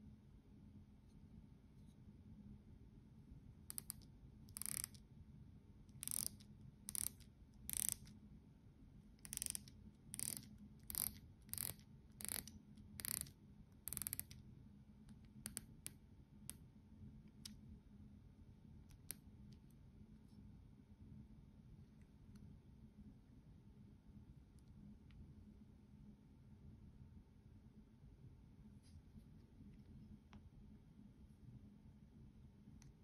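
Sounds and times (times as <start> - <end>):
watch bezel ratchet clicking: 3.7 - 5.0, 5.9 - 8.1, 9.2 - 14.4.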